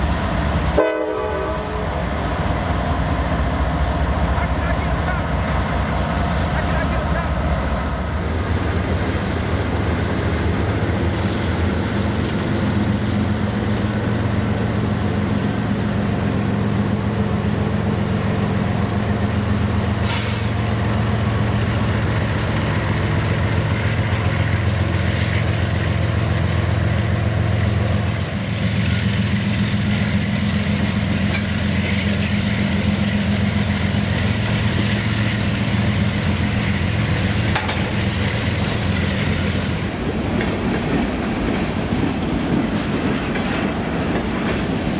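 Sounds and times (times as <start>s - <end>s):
diesel locomotive engine running: 0.0s - 44.9s
air hiss: 20.0s - 20.8s.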